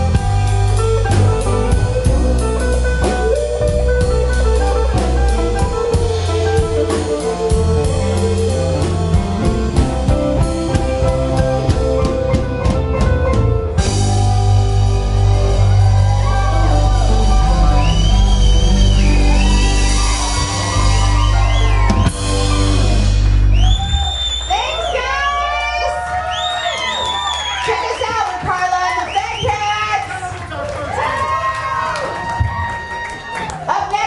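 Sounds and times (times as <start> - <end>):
electric guitar chords ringing: 0.0 - 24.1
drum kit beat: 0.0 - 26.1
electric bass: 0.0 - 28.0.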